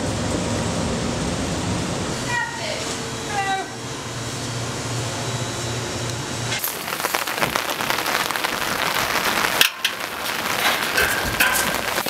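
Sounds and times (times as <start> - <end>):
low hum of kitchen equipment: 0.0 - 6.7
crackling patter of rain: 6.5 - 12.0.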